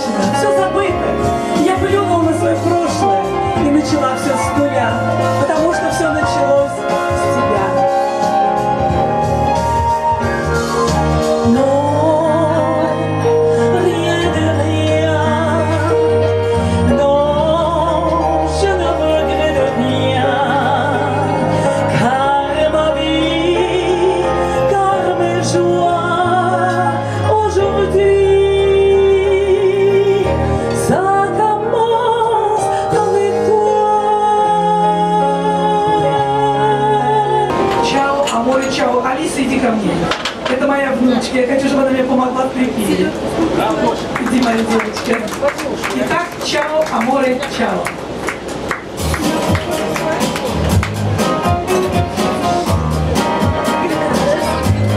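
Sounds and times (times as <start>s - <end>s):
backing music with bass line: 0.0s - 38.7s, 48.0s - 54.9s
woman singing into a microphone: 0.0s - 43.2s.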